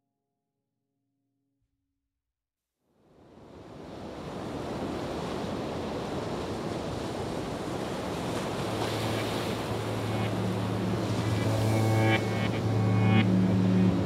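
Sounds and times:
steady rushing noise: 8.0s - 14.0s
low held musical tone: 8.6s - 14.0s.

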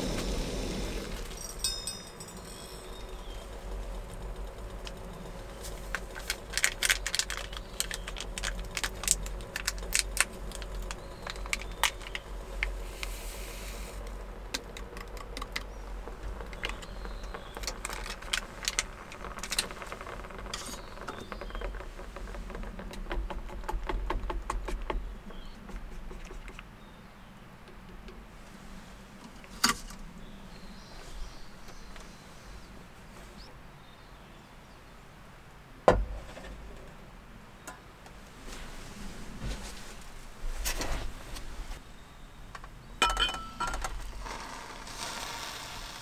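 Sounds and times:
rustling hiss: 0.0s - 22.3s, 43.9s - 46.0s
clinks taps and rattles: 1.3s - 3.4s, 42.6s - 44.0s.

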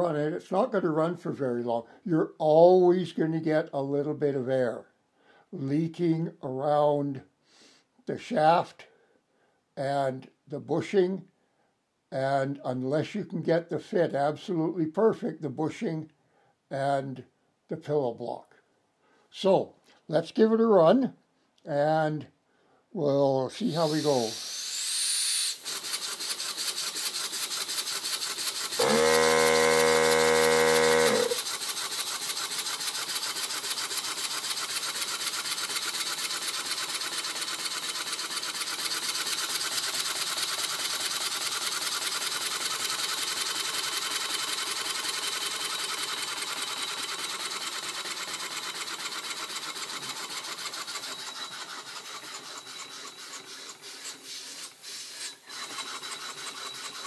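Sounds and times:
steady air hiss: 23.6s - 25.6s, 53.7s - 55.5s
loud steady humming tone: 28.8s - 31.4s.

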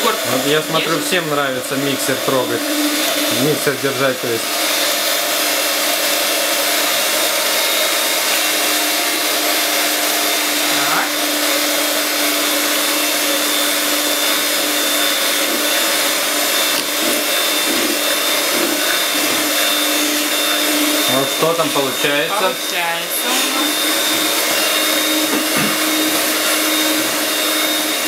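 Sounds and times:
electric hand mixer whining: 0.0s - 28.0s.

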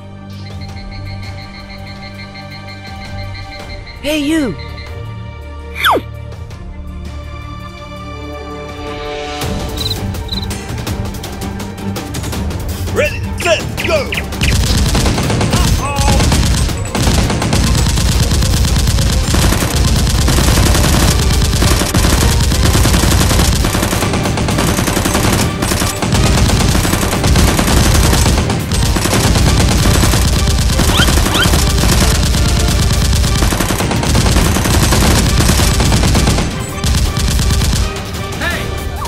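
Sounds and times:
machine-gun fire: 14.2s - 38.3s.

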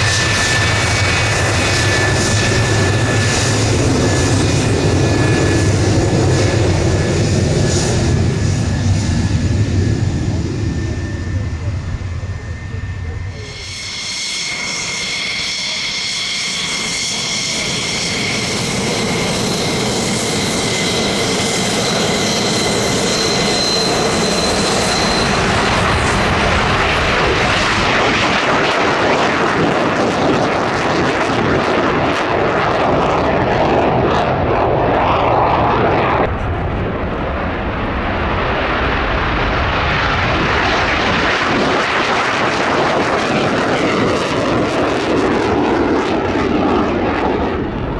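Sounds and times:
high jet engine whine: 0.0s - 47.9s
loud jet roar: 0.0s - 47.9s.

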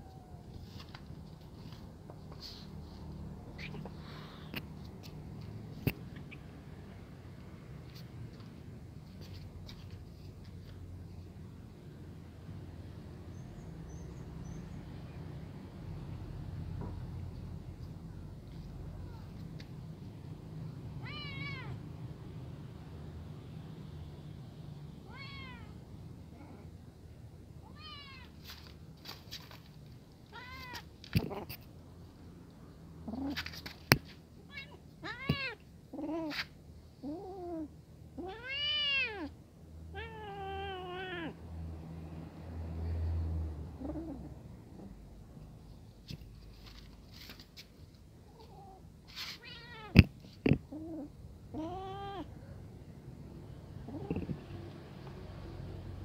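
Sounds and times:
cat meowing: 0.0s - 0.6s, 21.0s - 21.8s, 25.0s - 25.8s, 30.3s - 31.5s, 34.5s - 36.5s, 37.1s - 41.4s, 48.4s - 52.4s
kitten meowing: 49.4s - 52.3s.

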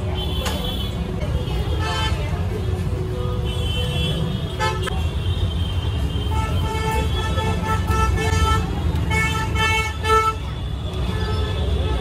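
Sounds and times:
street traffic rumbling: 0.0s - 12.0s
vehicle horns honking: 3.5s - 12.0s.

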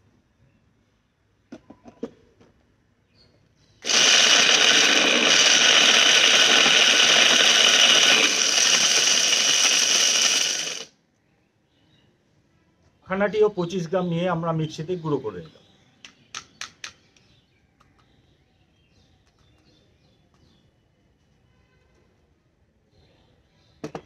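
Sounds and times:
mixer grinder grinding: 3.8s - 10.9s.

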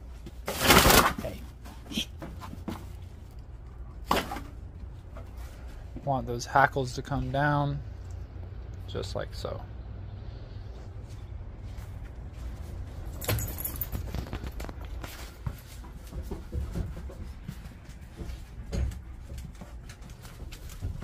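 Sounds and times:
footsteps indoors: 10.8s - 21.0s
clinks and knocks: 13.1s - 14.5s.

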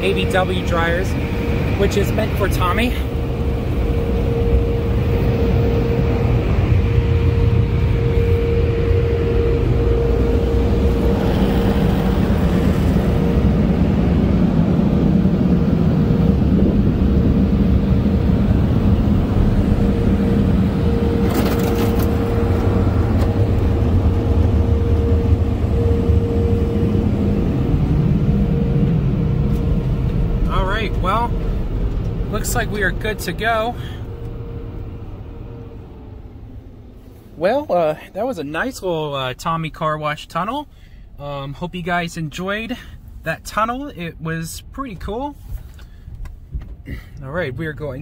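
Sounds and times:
car wash dryer blowers: 0.0s - 40.6s.

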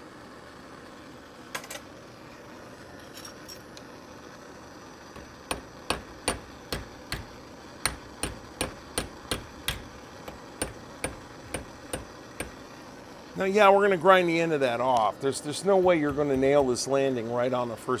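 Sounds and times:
torch hissing: 0.0s - 18.0s
hammer striking hot steel: 5.1s - 12.7s, 14.8s - 17.4s.

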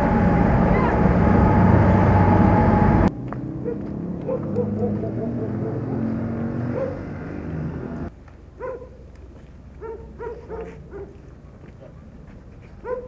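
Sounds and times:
loud jumble of sound: 0.0s - 3.2s
dog barking: 3.6s - 6.1s, 6.7s - 7.1s, 8.6s - 9.0s, 9.8s - 12.1s, 12.8s - 13.0s.

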